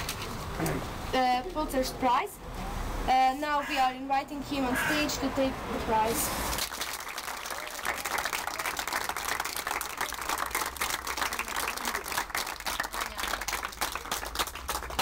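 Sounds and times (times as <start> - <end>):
crowd applauding: 6.6 - 15.0.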